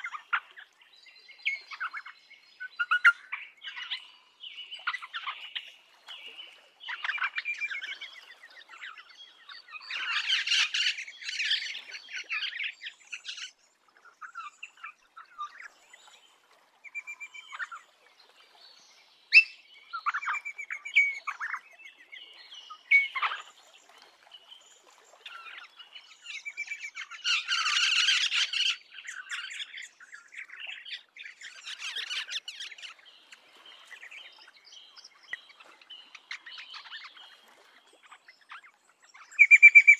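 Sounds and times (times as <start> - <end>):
birds whistling and chirping: 1.4 - 4.1, 4.7 - 13.5, 16.8 - 17.8, 19.3 - 23.5, 25.2 - 39.9.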